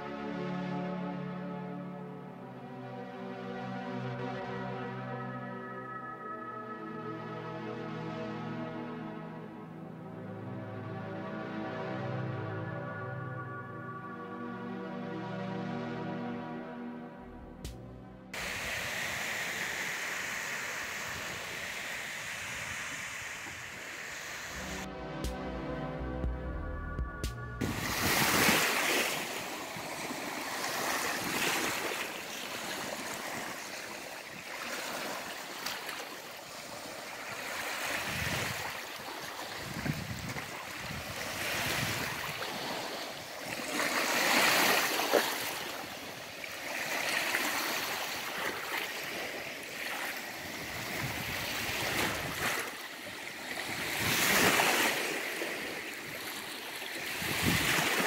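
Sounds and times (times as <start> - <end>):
small waves washing on beach: 18.4 - 24.8, 27.7 - 58.0.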